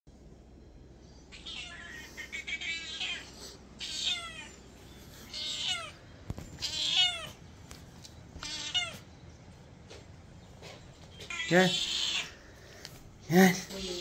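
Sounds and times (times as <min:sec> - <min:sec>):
cat meowing: 0:01.3 - 0:04.6, 0:05.3 - 0:06.0, 0:06.6 - 0:07.4, 0:08.4 - 0:09.1, 0:11.3 - 0:12.4.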